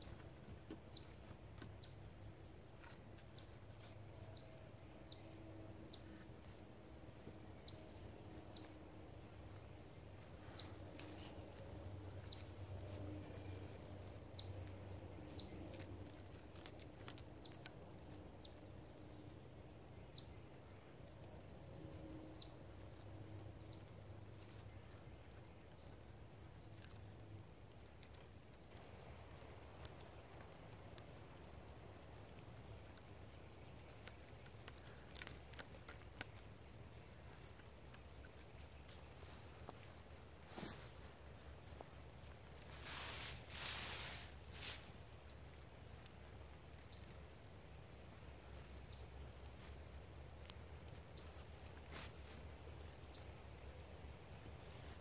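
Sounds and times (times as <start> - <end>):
bird chirping: 0.0 - 28.8.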